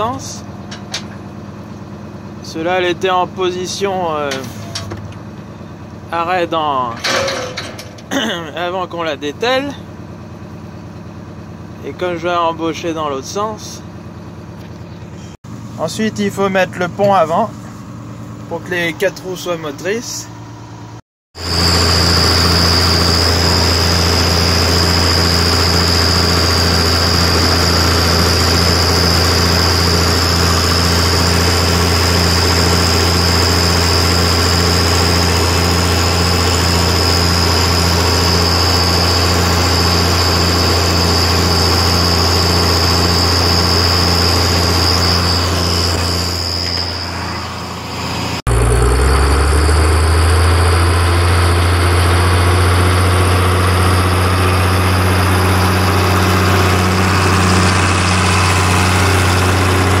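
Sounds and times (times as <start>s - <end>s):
diesel tractor engine running: 0.0s - 60.0s
thin high whine: 21.4s - 60.0s.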